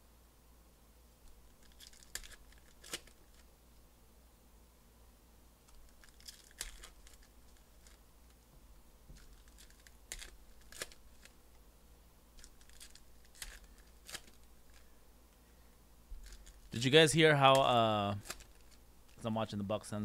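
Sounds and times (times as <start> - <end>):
cards rustling: 1.3 - 3.5, 5.6 - 8.4, 9.1 - 11.6, 12.3 - 15.0, 16.1 - 19.3
foil wrappers tearing and crinkling: 1.6 - 3.4, 5.8 - 8.0, 9.2 - 11.3, 12.4 - 14.9, 16.2 - 16.8, 17.6 - 18.8.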